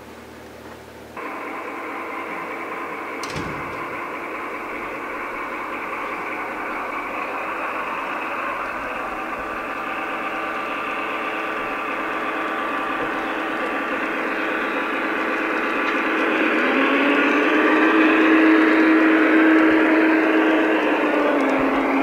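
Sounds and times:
diesel engine sound from small loudspeaker: 0:01.1 - 0:22.0
click: 0:03.2 - 0:04.0.

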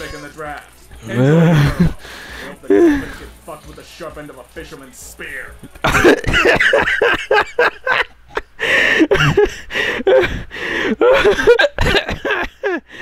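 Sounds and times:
breathy gasps: 0:01.1 - 0:03.3, 0:08.6 - 0:11.0
man laughing hard: 0:01.2 - 0:02.0, 0:05.8 - 0:13.0.

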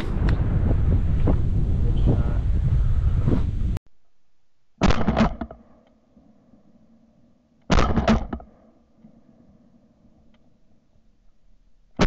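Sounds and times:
shotgun shots with echo: 0:04.8 - 0:05.6, 0:07.7 - 0:08.6.

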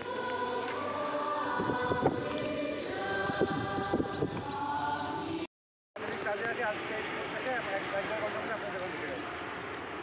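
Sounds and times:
choir singing held notes: 0:00.0 - 0:05.5.

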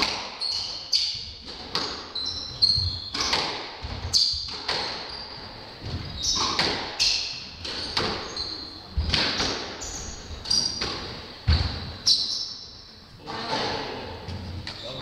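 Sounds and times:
squash ball strikes: 0:00.0 - 0:00.6, 0:02.8 - 0:05.1, 0:05.8 - 0:08.3, 0:08.9 - 0:09.8
shoes squeaking on hardwood: 0:00.4 - 0:12.7.

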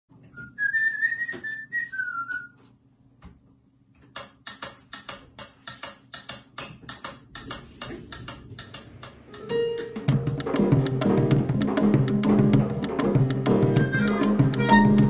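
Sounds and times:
whistled tune: 0:00.3 - 0:02.6
wood block clicks beat: 0:04.0 - 0:15.0.

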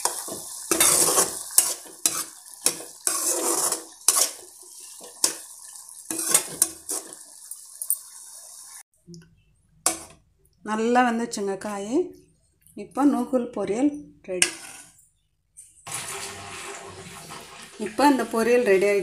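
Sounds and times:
metal spatula scraping a pan: 0:00.0 - 0:05.5, 0:06.1 - 0:07.3, 0:14.3 - 0:15.1
steady sizzle: 0:00.0 - 0:08.9.

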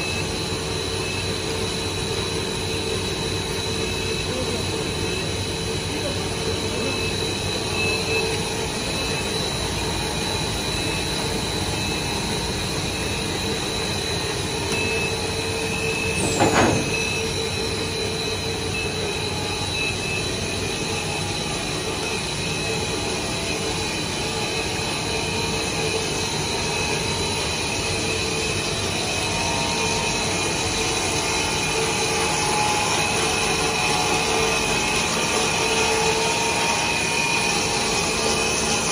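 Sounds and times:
machinery drone: 0:00.0 - 0:38.9
sharp noise with falling whistle: 0:06.6 - 0:38.9.

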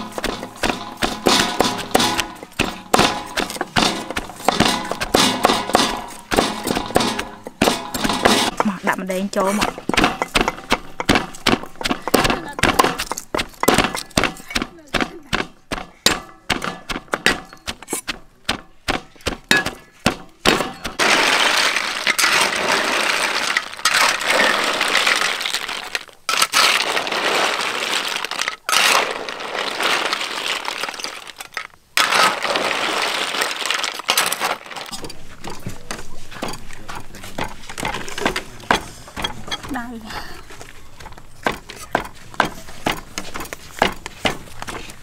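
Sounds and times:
pestle pounding in mortar: 0:00.0 - 0:21.2.

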